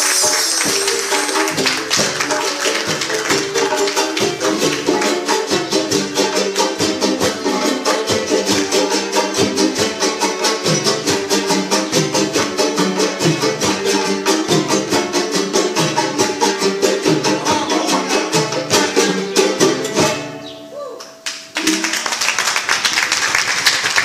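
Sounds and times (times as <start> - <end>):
audience applause: 0.0 - 5.1, 21.6 - 24.0
strummed guitars with hand drum: 0.0 - 22.0.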